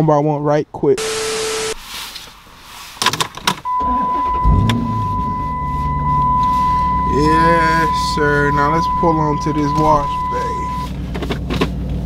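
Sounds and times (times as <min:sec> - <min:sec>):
car engine starting and idling: 0:03.3 - 0:12.0
steady high tone: 0:03.7 - 0:10.9.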